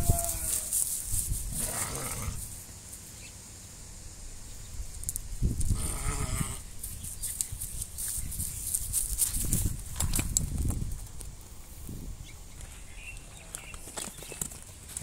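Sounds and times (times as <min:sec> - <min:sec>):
livestock bleating: 0:00.0 - 0:00.7.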